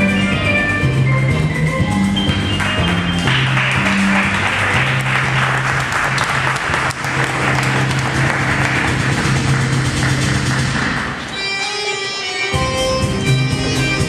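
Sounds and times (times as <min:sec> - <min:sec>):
music with low bass line: 0:00.0 - 0:11.2, 0:12.6 - 0:14.0
audience applauding: 0:02.3 - 0:11.2.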